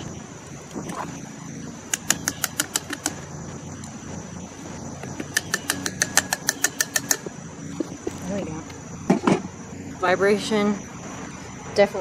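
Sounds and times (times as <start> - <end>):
hand tool tapping on metal: 1.9 - 3.2, 5.2 - 7.3.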